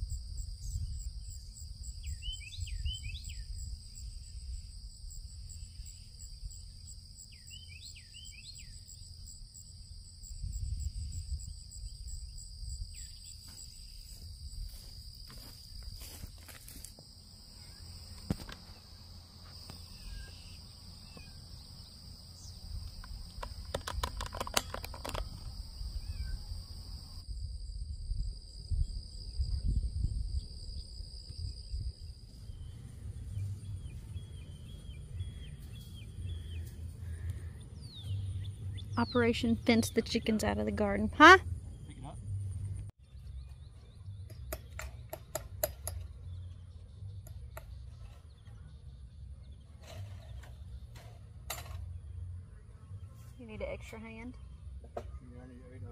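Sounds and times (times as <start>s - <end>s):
high-pitched insect chorus: 0.0s - 40.2s.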